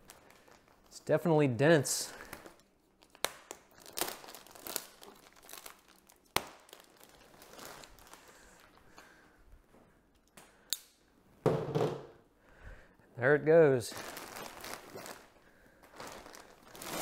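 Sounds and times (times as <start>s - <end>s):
plastic wrapping crinkling: 0.0s - 1.1s, 2.0s - 8.9s, 13.9s - 17.0s.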